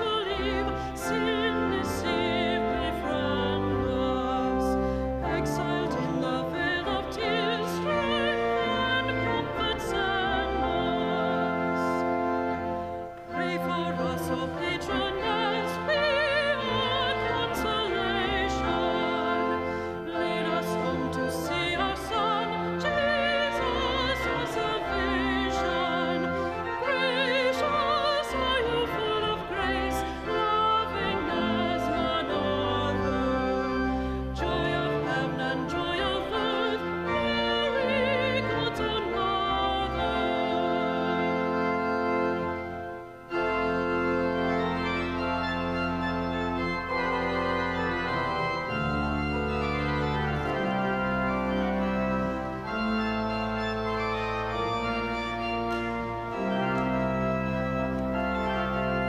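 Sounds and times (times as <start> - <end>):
person singing with vibrato: 0.0 - 12.1, 13.3 - 41.6
church organ: 0.0 - 59.0.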